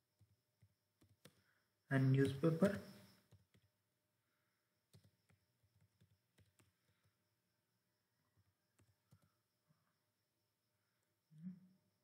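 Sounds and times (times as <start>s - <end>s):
keyboard keys clicking: 2.1s - 3.7s, 4.9s - 7.1s.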